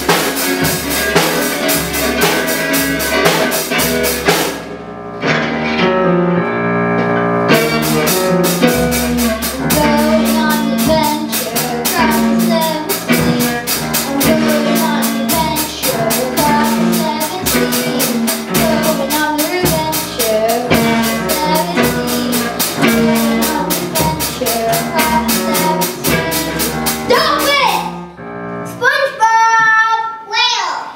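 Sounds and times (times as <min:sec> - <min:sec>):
drums and cymbals beat: 0:00.0 - 0:04.8, 0:07.5 - 0:28.2
rock band playing live: 0:00.0 - 0:28.2
girl singing into microphone: 0:07.5 - 0:27.6.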